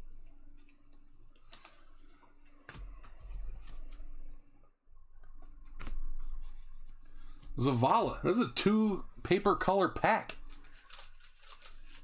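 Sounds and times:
soft rustling of cards: 0.0 - 4.6, 5.2 - 8.1, 9.2 - 12.0
cards clicking and snapping: 0.6 - 1.8.

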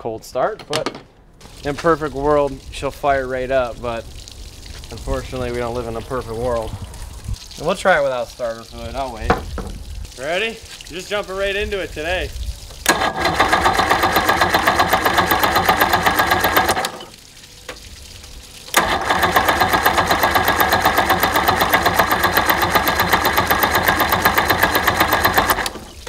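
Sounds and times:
outboard motor cranking: 12.8 - 17.1, 18.7 - 26.0.

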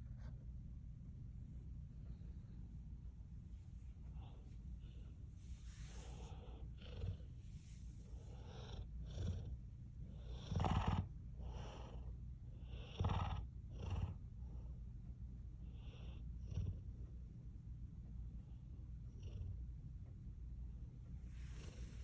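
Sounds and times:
dog snoring: 5.8 - 14.6, 15.6 - 16.9.

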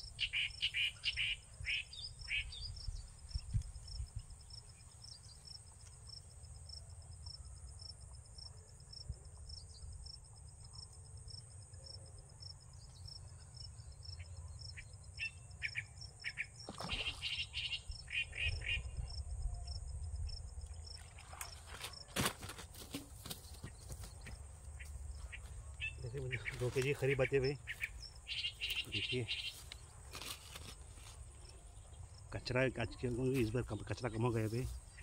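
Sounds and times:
bird chirps: 0.0 - 4.0, 13.8 - 19.8, 23.4 - 30.0
insects chirring: 0.0 - 35.0
wind rumble on microphone: 2.5 - 4.4.

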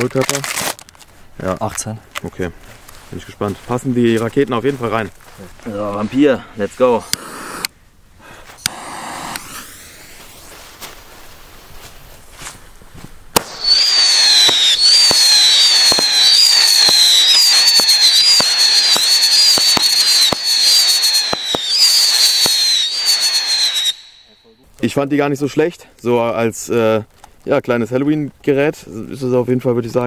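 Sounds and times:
whistling firework shots: 8.6 - 10.6, 13.4 - 24.4.

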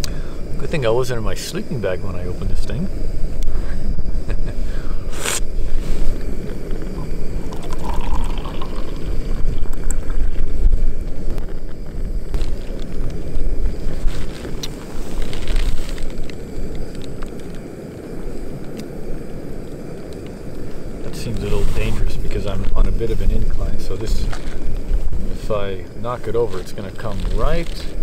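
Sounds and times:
wind buffeting microphone: 0.0 - 28.0
brief hiss: 3.4 - 7.1.

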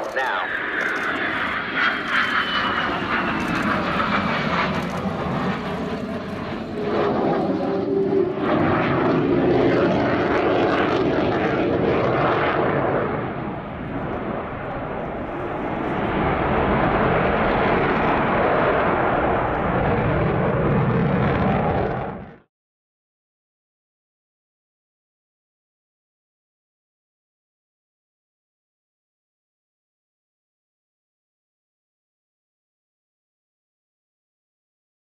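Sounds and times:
jet engines passing close: 0.0 - 22.5.

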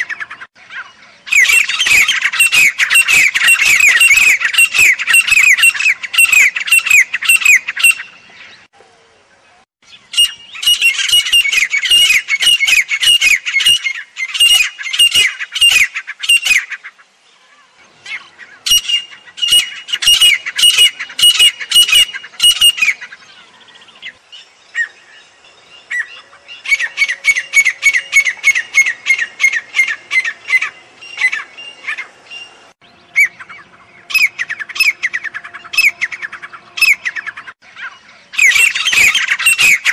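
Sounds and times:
bird harsh repeated calls: 0.0 - 8.7, 9.9 - 25.1, 25.8 - 39.9.

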